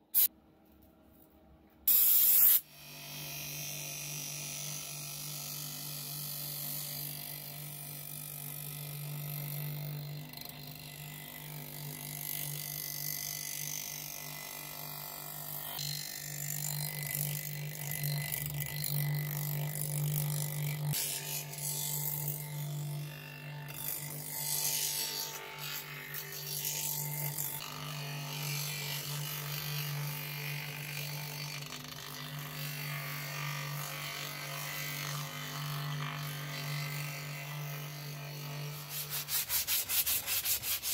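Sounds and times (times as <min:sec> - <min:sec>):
wood rasping on grinding wheel: 0:15.8 - 0:40.9.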